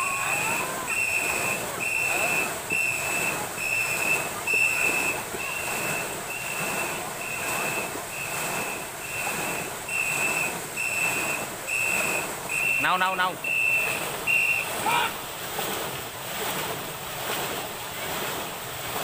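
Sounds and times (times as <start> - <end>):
people shouting: 0.0 - 1.6, 14.3 - 15.2
high whistle blasts: 0.0 - 15.0
paddles splashing water: 0.0 - 19.0.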